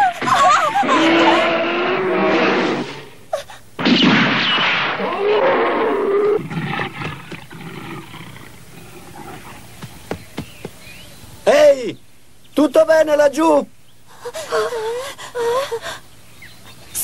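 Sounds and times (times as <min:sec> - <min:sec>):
bear roaring: 0:00.8 - 0:03.2, 0:05.0 - 0:09.8.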